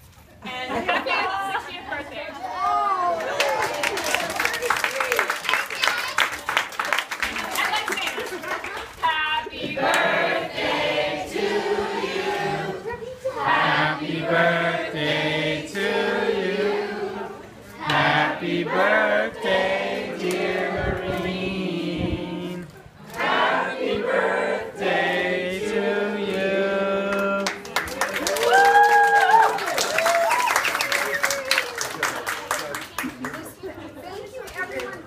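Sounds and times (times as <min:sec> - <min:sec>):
crowd singing together: 0:09.3 - 0:27.6.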